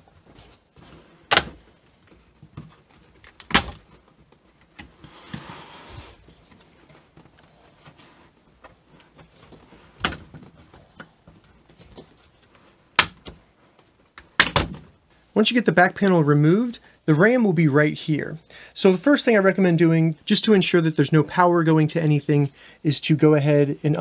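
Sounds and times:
plastic scraping rub: 0:04.9 - 0:06.4.

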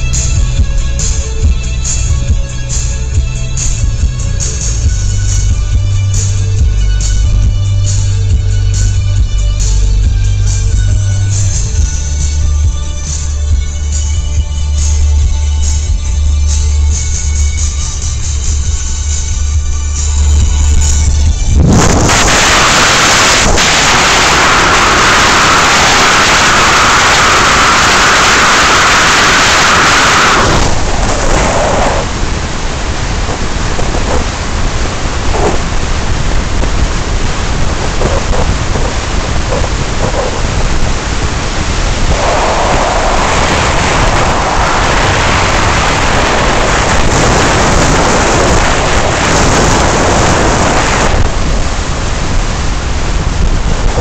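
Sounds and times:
wind buffeting microphone: 0:20.1 - 0:54.0.

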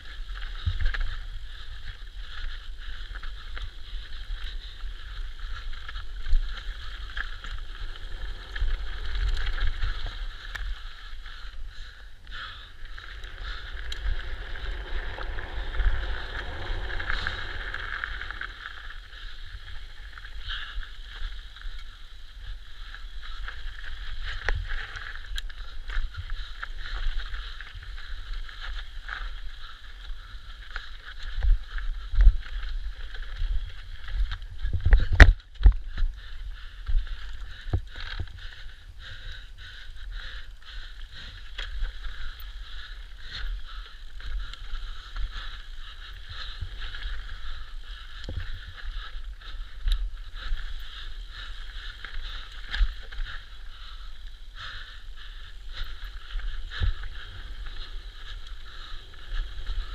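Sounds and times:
bike rattling over rocks: 0:00.0 - 0:39.4, 0:40.3 - 0:59.9
wind: 0:00.0 - 0:59.9
tyre rumble: 0:12.9 - 0:20.6.

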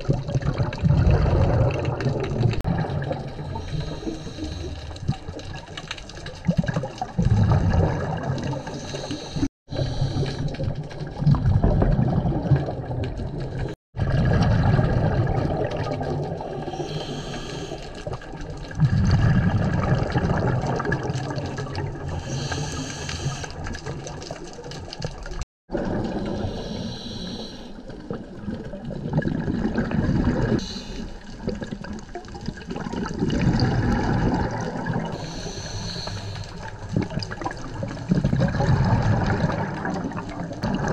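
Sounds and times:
underwater exhaled bubbles: 0:00.0 - 0:40.9
regulator inhalation hiss: 0:03.6 - 0:04.7, 0:16.8 - 0:17.9, 0:26.5 - 0:27.8, 0:35.2 - 0:36.7.

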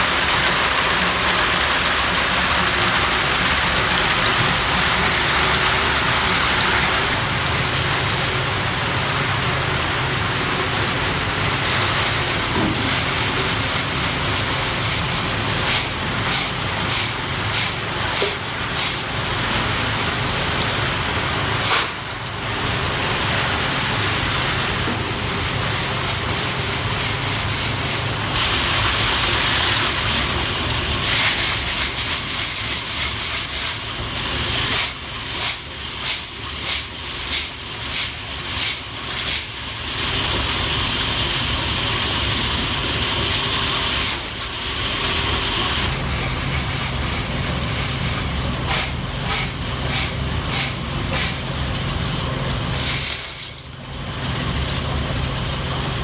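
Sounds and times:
machine running: 0:00.0 - 0:56.0
metal parts clattering into drum: 0:31.0 - 0:41.0, 0:52.8 - 0:53.8.

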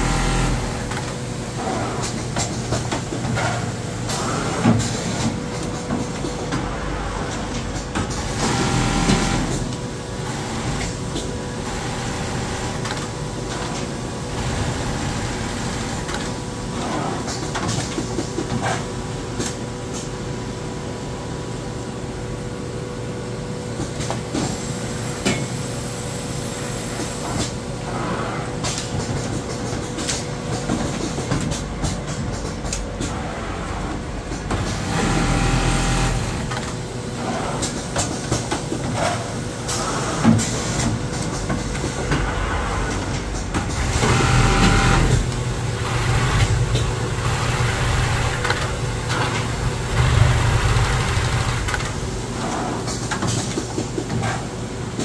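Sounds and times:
sewing machine humming: 0:00.0 - 0:01.0, 0:11.6 - 0:13.1, 0:34.6 - 0:36.7, 0:43.8 - 0:52.0.

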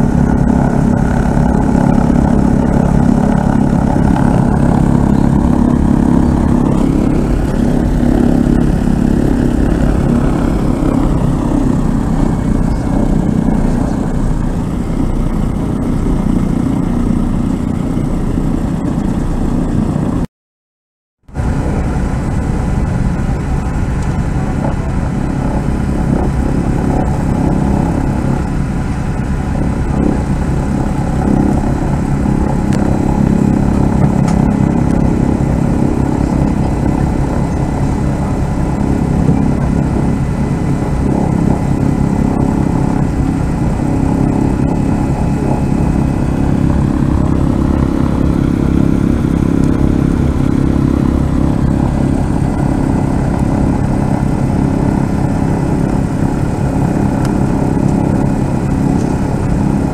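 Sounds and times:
piston aircraft engines droning: 0:00.0 - 0:20.3, 0:21.3 - 0:59.9.

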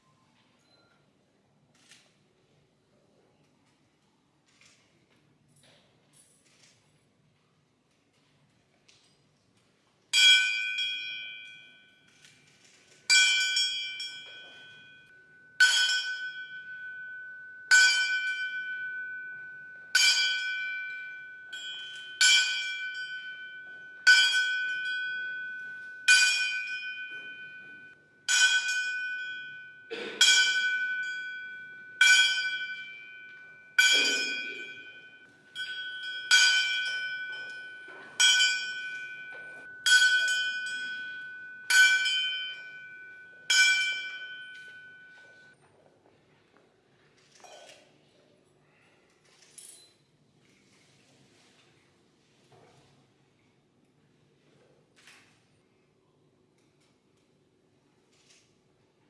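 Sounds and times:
brass hand bell ringing: 0:10.2 - 0:11.9, 0:13.1 - 0:45.6.

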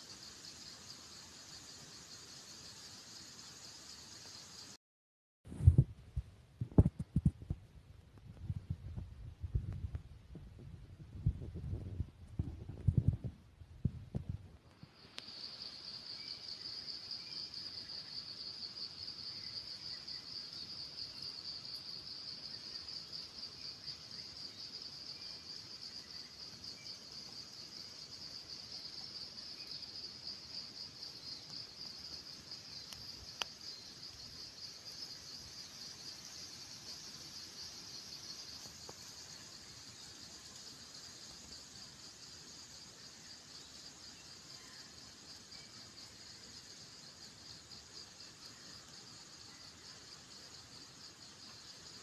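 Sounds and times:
high-pitched insect trill: 0:00.0 - 0:04.8, 0:14.9 - 0:52.0
low thumps: 0:05.5 - 0:07.6.

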